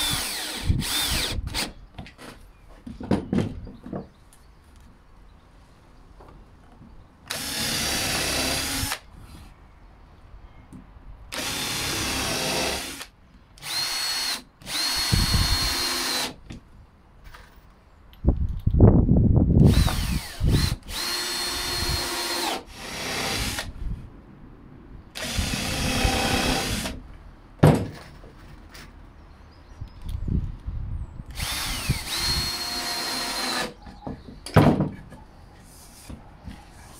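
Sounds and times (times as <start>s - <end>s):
cordless drill boring wood: 0.0s - 1.8s, 7.3s - 9.0s, 11.3s - 16.4s, 19.7s - 23.7s, 25.2s - 27.0s, 31.3s - 33.8s.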